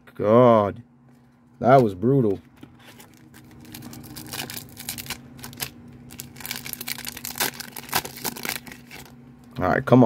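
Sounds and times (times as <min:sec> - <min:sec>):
foil wrapper crinkling and tearing: 0:02.8 - 0:09.2.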